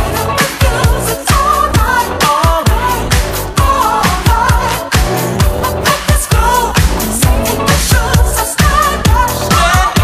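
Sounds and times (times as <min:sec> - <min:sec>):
disco dance music: 0:00.0 - 0:10.0
steady kick drum: 0:00.0 - 0:10.0.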